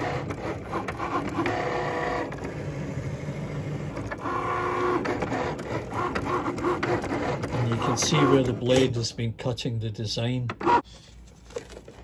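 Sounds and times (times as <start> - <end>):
cutting machine motors whining: 0.0 - 8.9
steady mechanical rasp: 0.0 - 8.9.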